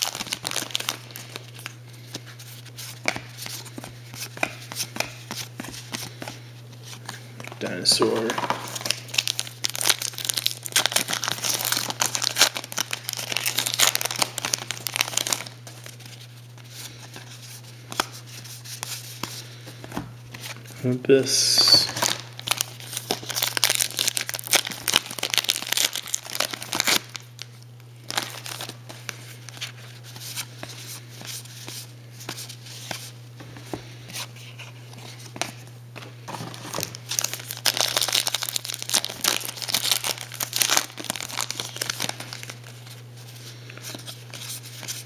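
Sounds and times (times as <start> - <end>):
wrapper tearing and crinkling: 0.0 - 1.7, 8.0 - 16.0, 21.6 - 27.5, 28.1 - 28.8, 36.2 - 42.9
cards being flipped through: 0.0 - 20.7
steady low hum: 0.0 - 45.0.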